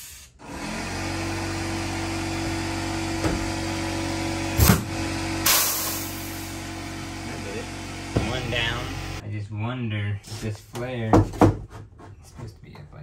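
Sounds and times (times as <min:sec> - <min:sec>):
steady machine hum: 0:00.4 - 0:09.2
hissing air blast: 0:05.4 - 0:06.5.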